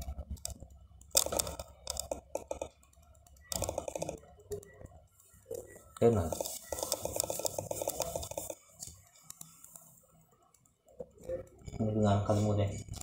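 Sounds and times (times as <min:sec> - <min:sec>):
eraser clicking and rubbing on whiteboard: 0:00.4 - 0:04.3, 0:06.0 - 0:09.9.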